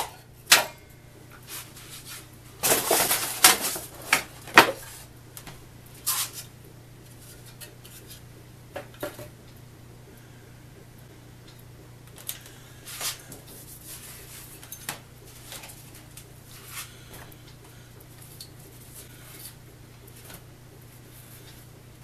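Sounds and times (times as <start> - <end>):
steady low hum: 0.0 - 22.0
cloth rag rustling and scraping: 1.4 - 2.3.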